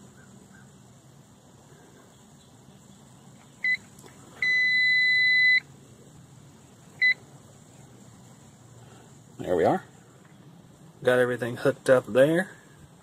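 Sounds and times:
high-pitched meter beeps: 4.4 - 5.6.

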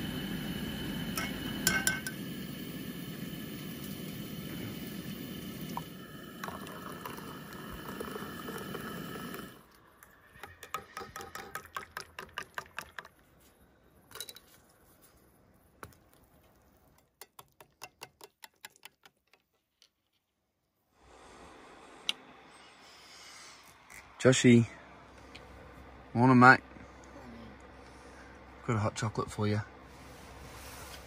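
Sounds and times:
milk pouring into a mug: 4.6 - 13.3
spoon stirring clicking on mug: 10.4 - 13.1.

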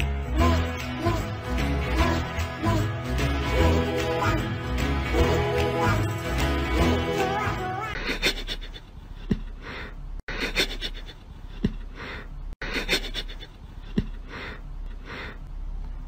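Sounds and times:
music: 0.0 - 7.9.

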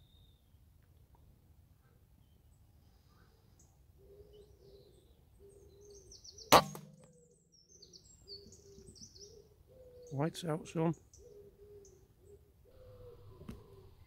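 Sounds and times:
small birds chirping: 1.8 - 14.0
low cooing call: 3.1 - 6.3, 8.0 - 10.3, 11.1 - 14.0
air rifle shot: 6.5 - 7.2.

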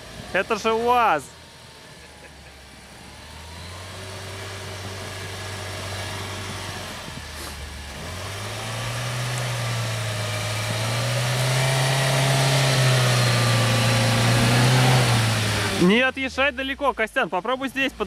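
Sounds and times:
suv engine pulling under load: 0.0 - 16.6.

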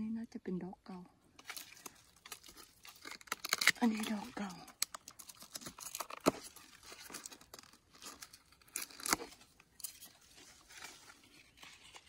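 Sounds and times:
twigs snapping: 1.4 - 11.0
dry leaves and twigs rustling: 1.4 - 12.0.

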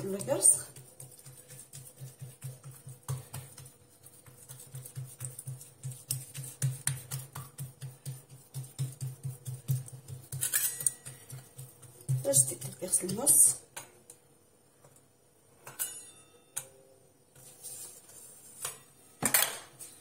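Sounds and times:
hands patting dough: 0.0 - 13.6.

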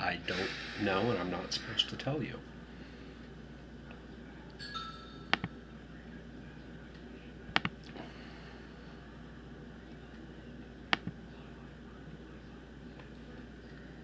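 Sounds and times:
computer mouse clicks: 10.9 - 11.1.

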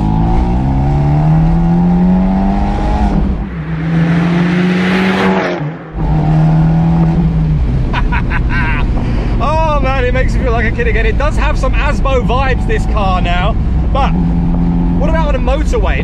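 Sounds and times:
car engine at full throttle: 0.0 - 16.0
car passing by with whoosh: 1.1 - 7.2.

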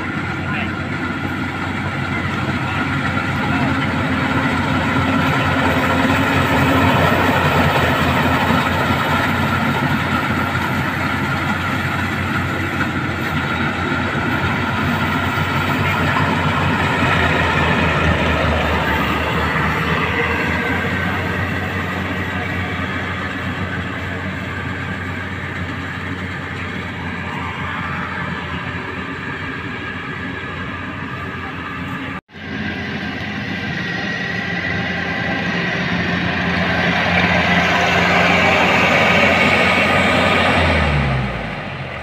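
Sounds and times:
combine harvester mechanical drone: 0.0 - 42.0.

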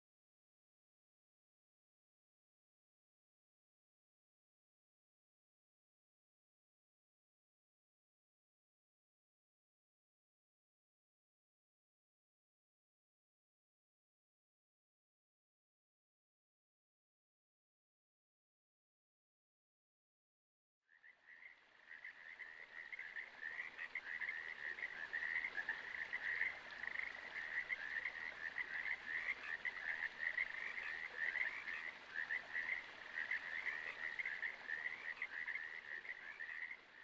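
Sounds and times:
chorus of frogs trilling: 20.9 - 37.0.

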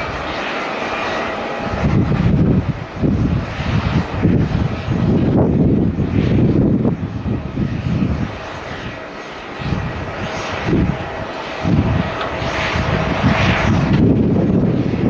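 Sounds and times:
jet engines rushing hiss: 0.0 - 15.0
wind buffeting microphone: 0.0 - 15.0.

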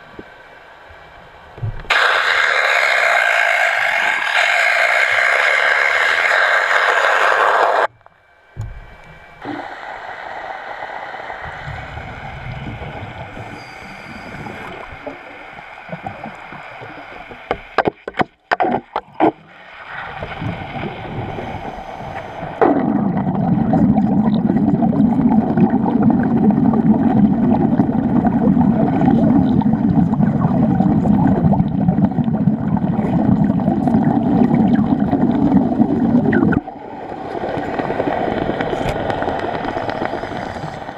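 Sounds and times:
underwater welding arc: 1.8 - 7.9, 8.6 - 40.9
loud rush of noise: 1.9 - 7.9, 9.4 - 17.6
water bubbling: 11.4 - 40.9.

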